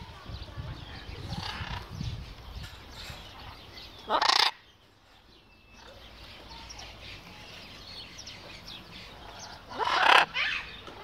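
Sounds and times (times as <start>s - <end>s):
macaw squawking harshly: 4.1s - 4.6s, 9.7s - 10.8s.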